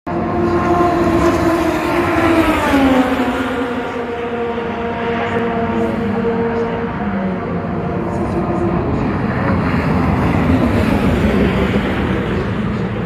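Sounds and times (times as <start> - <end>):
race car engine at speed: 0.1 - 13.0.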